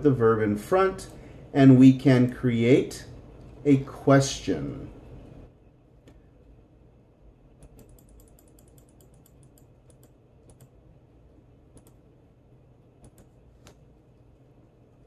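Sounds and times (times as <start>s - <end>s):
faint computer clicking: 6.0s - 6.3s, 7.5s - 10.8s, 11.7s - 12.1s, 13.0s - 15.0s.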